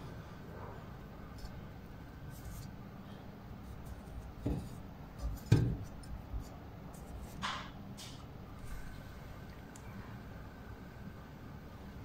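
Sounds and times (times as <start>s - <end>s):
small knocks on motor shaft: 4.4s - 5.9s.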